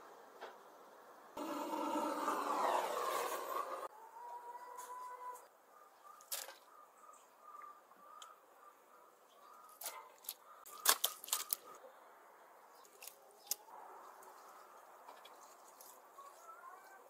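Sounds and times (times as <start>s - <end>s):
wet slaps of tripe handled: 9.8s - 11.6s.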